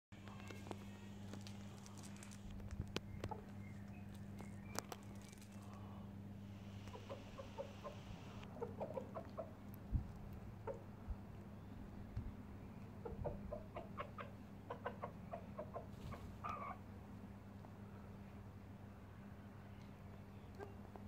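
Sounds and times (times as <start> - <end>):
steady low hum: 0.2 - 9.0
chickens clucking: 1.9 - 5.5, 6.5 - 9.6, 10.5 - 10.9, 12.9 - 16.8, 20.3 - 21.0.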